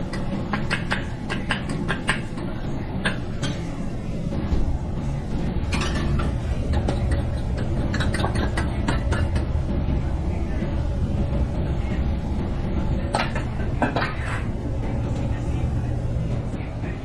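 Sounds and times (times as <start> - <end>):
utensils and cookware clicking: 0.0 - 3.8, 5.6 - 9.6, 13.0 - 15.4
steady low rumble: 0.0 - 17.0.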